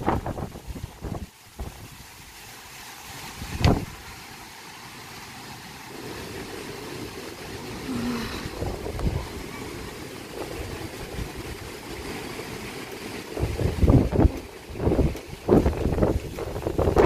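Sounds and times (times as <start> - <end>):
wind blowing across microphone: 0.0 - 4.2, 5.9 - 17.0.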